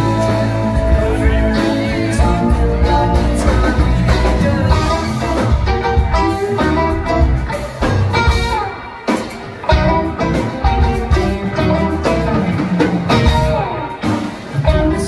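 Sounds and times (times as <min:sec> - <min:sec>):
person singing: 0:00.0 - 0:06.9, 0:14.6 - 0:15.0
bass guitar: 0:00.0 - 0:15.0
drums: 0:00.0 - 0:15.0
electric guitars: 0:00.0 - 0:15.0.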